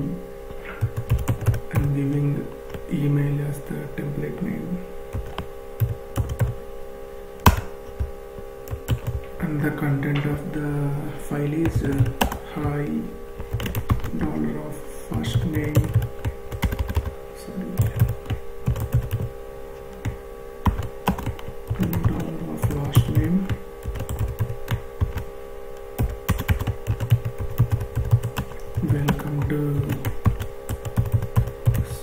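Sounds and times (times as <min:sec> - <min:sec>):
steady background hum: 0:00.0 - 0:32.0.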